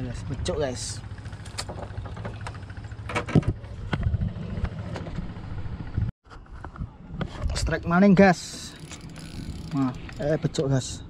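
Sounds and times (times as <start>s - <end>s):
low engine hum: 0.0s - 6.1s
knocks and clicks of handling tackle: 1.4s - 3.6s.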